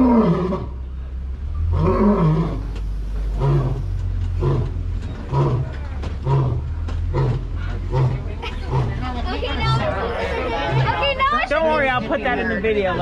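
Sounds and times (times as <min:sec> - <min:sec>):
lion roaring: 0:00.0 - 0:00.8, 0:01.6 - 0:09.0, 0:10.5 - 0:11.0
steady low hum: 0:00.0 - 0:13.0.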